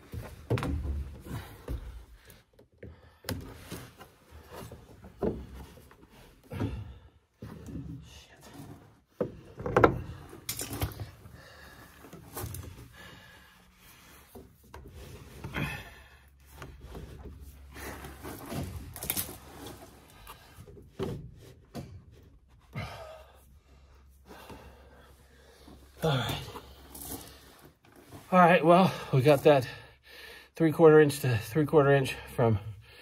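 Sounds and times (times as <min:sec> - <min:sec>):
plastic pipe rubbing and scraping: 0:13.8 - 0:15.6.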